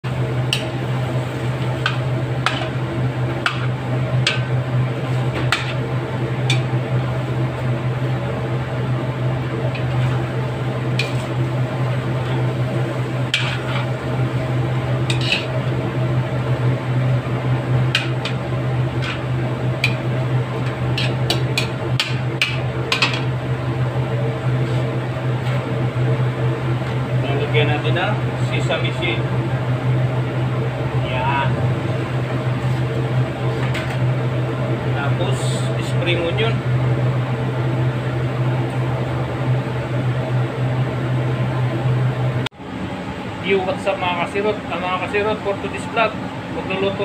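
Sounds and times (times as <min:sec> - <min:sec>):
steady low hum: 0:00.0 - 0:47.0
metal spoon scraping wok: 0:13.4 - 0:13.9, 0:15.1 - 0:15.6, 0:21.0 - 0:21.4.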